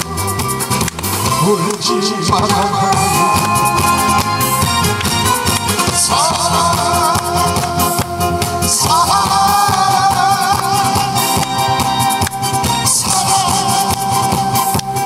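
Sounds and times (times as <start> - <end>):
amplified backing music with beat: 0.0 - 15.0
man singing with vibrato: 1.3 - 4.6, 5.7 - 14.8.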